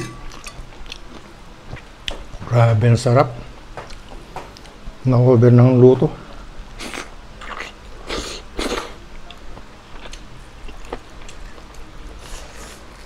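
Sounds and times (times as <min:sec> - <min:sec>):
person chewing food: 0:00.2 - 0:02.2, 0:06.8 - 0:13.0.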